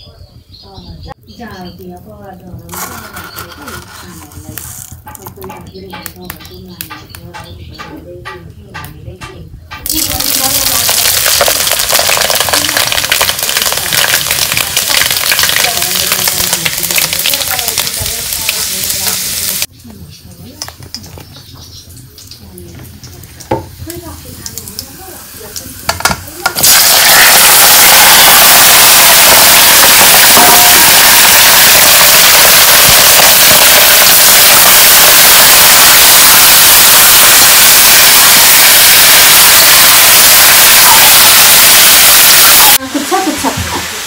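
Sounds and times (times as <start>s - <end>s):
chicken sizzling in hot oil: 9.8s - 19.7s, 20.8s - 44.0s.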